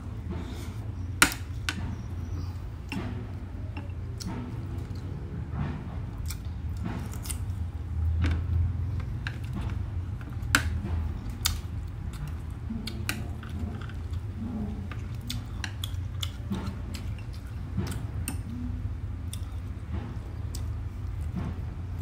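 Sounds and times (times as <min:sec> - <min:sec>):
steady low hum: 0:00.0 - 0:22.0
chewing: 0:11.0 - 0:21.3.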